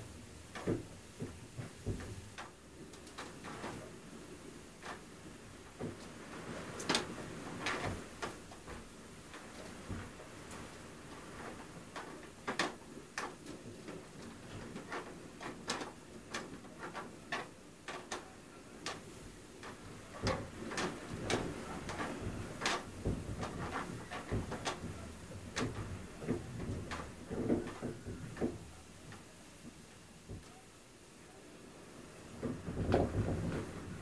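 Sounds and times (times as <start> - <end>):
window shutters banging and rattling: 4.8 - 29.3, 32.3 - 34.0.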